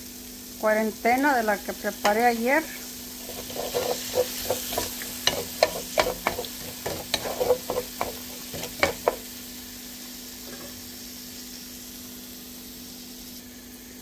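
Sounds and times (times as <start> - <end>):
onions sizzling in oil: 0.0 - 14.0
spatula scraping frying pan: 3.1 - 9.3.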